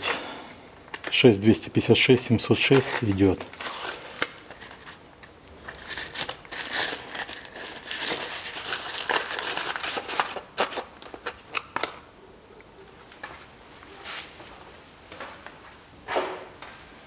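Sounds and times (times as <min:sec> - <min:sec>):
wrapping crinkling and rustling: 0:00.0 - 0:12.1.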